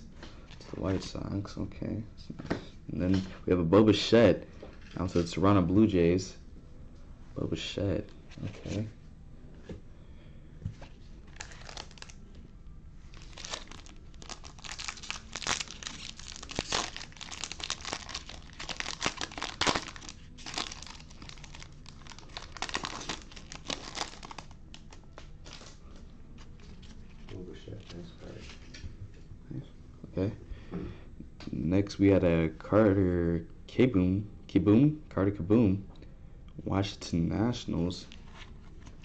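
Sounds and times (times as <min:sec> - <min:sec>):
foil wrapper crinkling and tearing: 0:11.3 - 0:12.2, 0:13.1 - 0:25.8.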